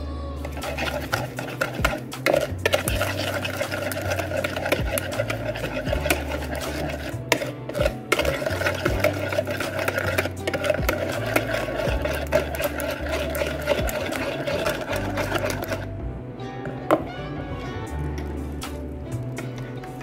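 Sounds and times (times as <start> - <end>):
whisk clicking against bowl: 0.5 - 15.8.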